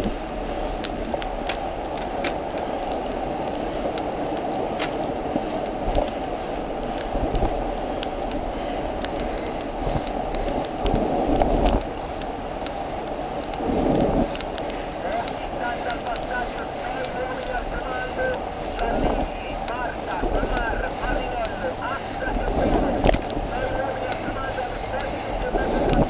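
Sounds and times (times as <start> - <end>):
raindrops hitting camera: 0.0 - 26.0
tyre spray and rain hiss: 0.0 - 26.0.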